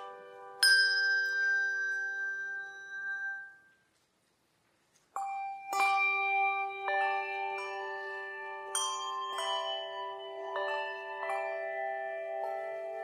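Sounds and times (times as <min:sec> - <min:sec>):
slow bell-like music: 0:00.0 - 0:04.3, 0:04.9 - 0:13.0.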